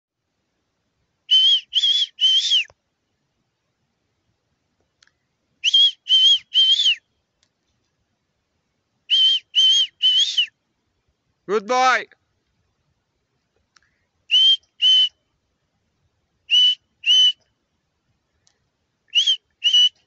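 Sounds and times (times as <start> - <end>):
person whistling high whistles: 1.3 - 2.7, 5.6 - 7.0, 9.1 - 10.5, 14.3 - 15.2, 16.5 - 17.4, 19.1 - 20.0.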